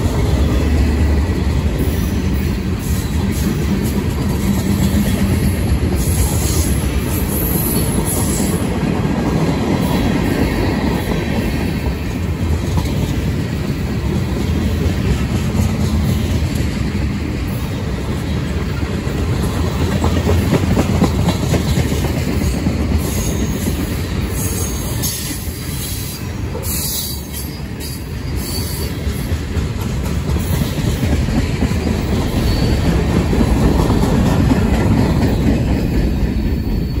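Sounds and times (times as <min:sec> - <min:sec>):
diesel locomotives: 0:00.0 - 0:37.0
freight train rumbling past: 0:00.0 - 0:37.0
wheel squeals: 0:32.3 - 0:33.0.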